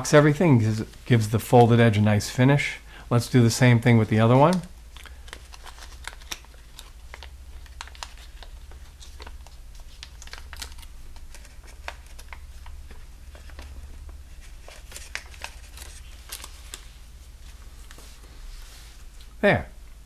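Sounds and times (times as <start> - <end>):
low steady hum: 0.0 - 20.0
paper crinkling while folded: 3.6 - 19.2.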